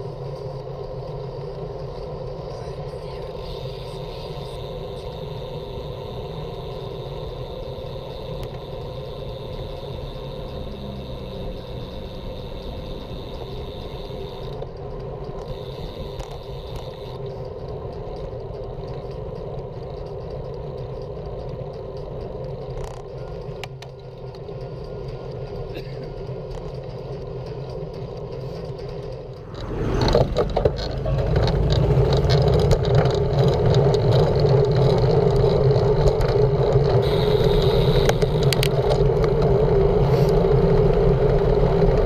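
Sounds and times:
motor traffic: 0.0 - 42.0
wind: 0.0 - 42.0
bicycle tyre rumble: 3.4 - 19.9, 28.4 - 42.0.

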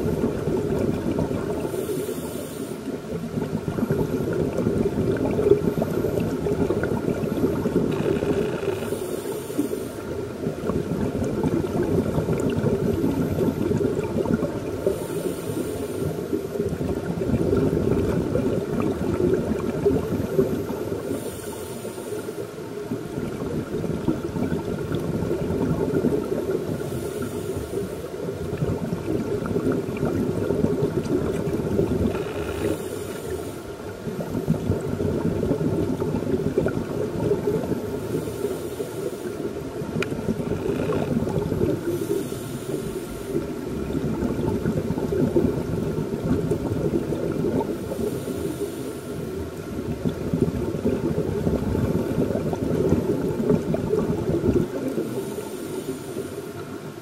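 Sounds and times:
bubbling exhaled air underwater: 0.0 - 57.0
regulator hiss: 1.6 - 3.1, 7.9 - 10.4, 14.8 - 16.6, 20.6 - 22.7, 26.6 - 28.2, 32.2 - 33.9, 37.8 - 39.7, 41.8 - 43.6, 47.8 - 49.5, 54.9 - 56.8.

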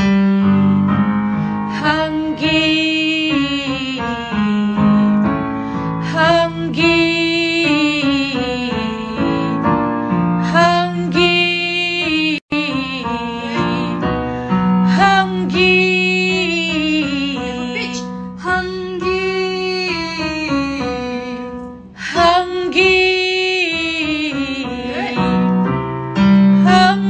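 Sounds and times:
keyboard accompaniment: 0.0 - 27.0
woman singing with vibrato: 1.7 - 5.2, 6.0 - 9.6, 10.4 - 14.0, 14.9 - 21.4, 22.0 - 25.6, 26.6 - 27.0.

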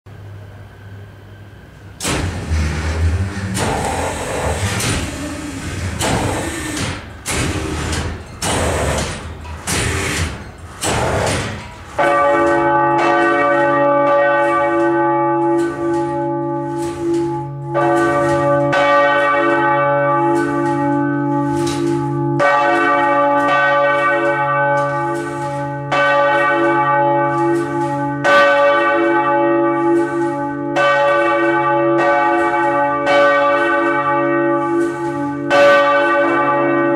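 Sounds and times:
church bells pealing: 11.6 - 36.9.

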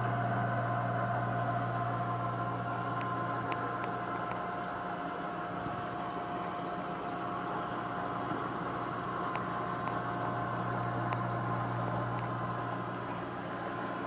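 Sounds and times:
aquarium pump humming: 0.0 - 14.0
faint ticks: 2.9 - 4.5, 9.2 - 12.5.

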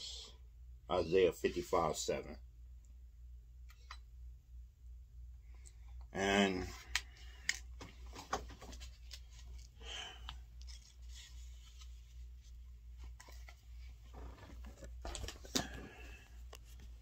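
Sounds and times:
steady low hum: 0.0 - 17.0
rustling and rubbing on phone: 10.4 - 15.4.

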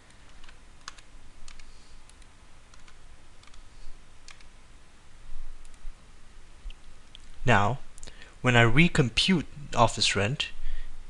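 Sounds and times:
computer keyboard keys clicking: 0.3 - 1.7, 2.7 - 3.6, 4.3 - 4.5.

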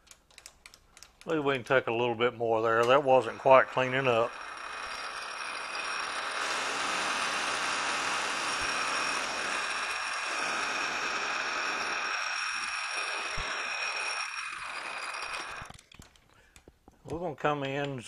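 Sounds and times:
faint steady whine: 1.2 - 17.0
metal lathe cutting metal: 2.7 - 15.7.

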